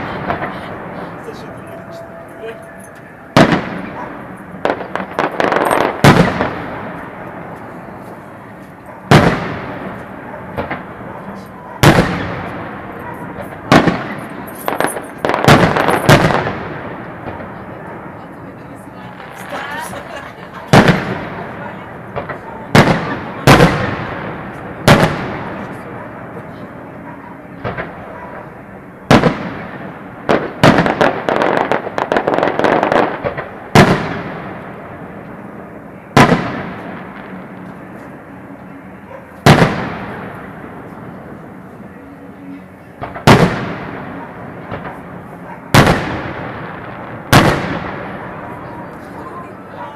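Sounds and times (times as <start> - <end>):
loud echoing booms: 0.0 - 8.0, 9.0 - 18.2, 20.7 - 26.9, 27.6 - 37.6, 39.4 - 41.3, 43.0 - 48.8
firework bursts: 0.0 - 38.2, 39.3 - 49.8
rapid firework crackling: 3.1 - 18.2, 18.9 - 35.2, 36.1 - 37.6, 39.3 - 41.2, 43.0 - 49.9.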